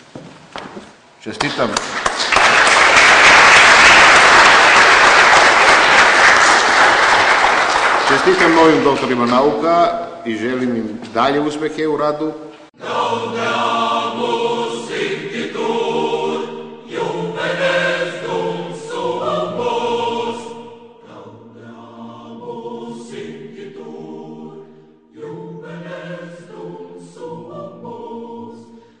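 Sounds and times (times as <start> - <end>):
choir singing held chords: 12.6 - 29.0.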